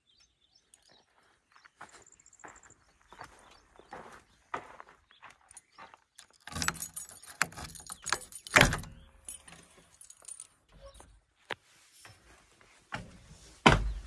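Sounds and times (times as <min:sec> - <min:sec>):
metallic door latch clicks and rattling: 0:06.3 - 0:11.0.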